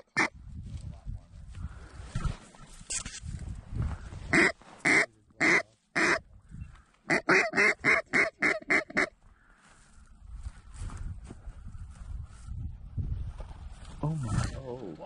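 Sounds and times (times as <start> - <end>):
duck call quacks: 4.3 - 6.2, 7.0 - 9.2.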